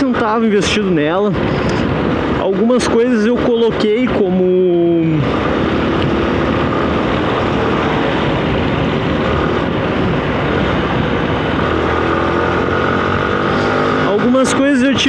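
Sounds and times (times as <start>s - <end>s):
road noise: 0.0s - 15.0s
wind rush: 0.0s - 15.0s
motorcycle engine running: 4.9s - 15.0s.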